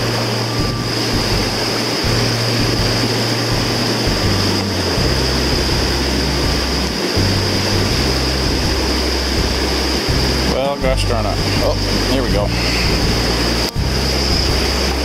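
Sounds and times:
low rumble: 0.0s - 15.0s
water rushing over rocks: 0.0s - 15.0s.

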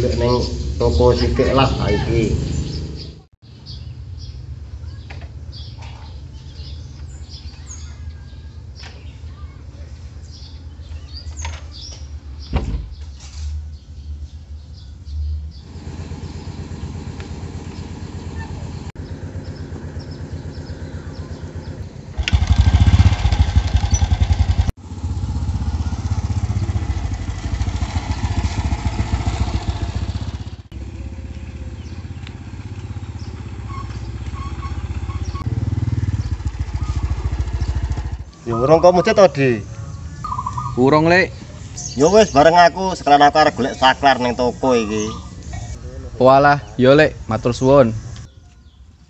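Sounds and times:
small motorcycle engine running: 15.6s - 38.4s.

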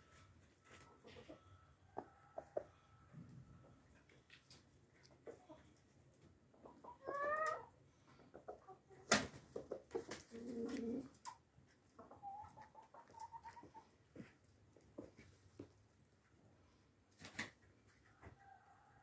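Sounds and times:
chickens clucking and squawking: 0.0s - 14.1s.

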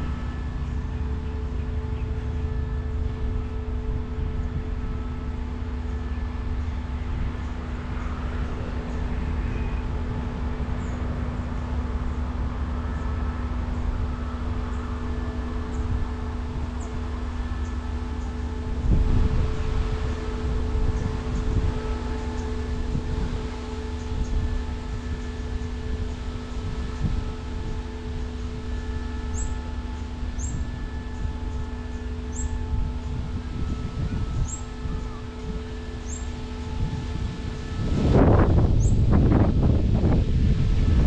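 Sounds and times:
idling locomotives hum and rumble: 0.0s - 41.0s.

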